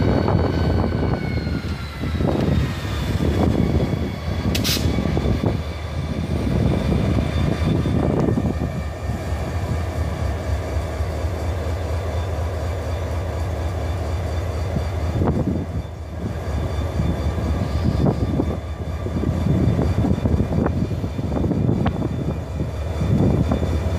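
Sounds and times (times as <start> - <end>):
diesel locomotive engine rumble: 0.0 - 23.9
brief hiss: 4.5 - 5.0.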